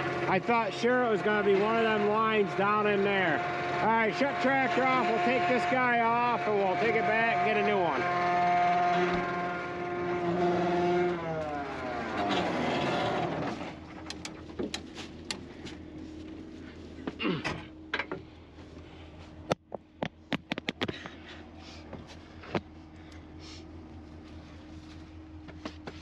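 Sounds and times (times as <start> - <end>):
tractor diesel engine shutting off: 0.0 - 16.8
sharp clicks and knocks: 13.6 - 15.4, 19.5 - 21.2.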